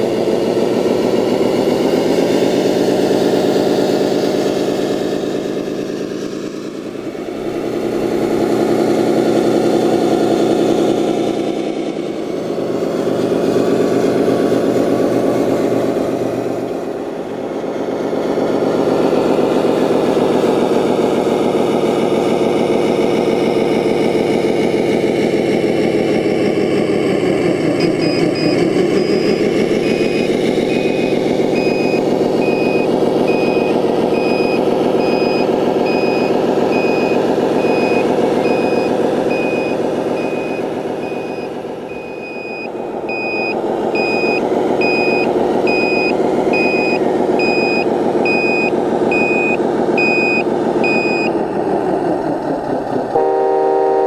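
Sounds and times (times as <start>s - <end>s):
simulated diesel engine: 0.0s - 54.0s
reversing alarm beeping: 27.8s - 51.4s.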